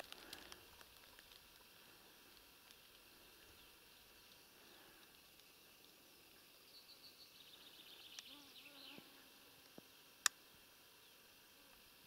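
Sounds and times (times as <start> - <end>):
faint forest ambience: 0.0 - 12.0
flying insect buzzing: 7.6 - 10.1.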